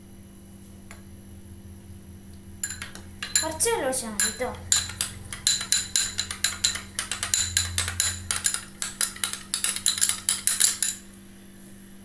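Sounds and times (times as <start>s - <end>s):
spoon clinking against bowl: 2.6s - 11.0s.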